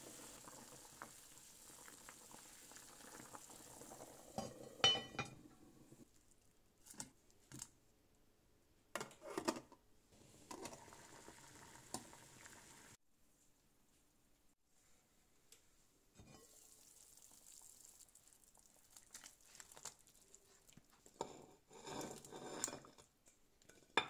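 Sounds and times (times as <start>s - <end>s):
pot bubbling hiss: 0.0s - 6.1s, 10.2s - 13.0s, 16.2s - 22.8s
cookware clinking and knocking: 4.4s - 5.6s.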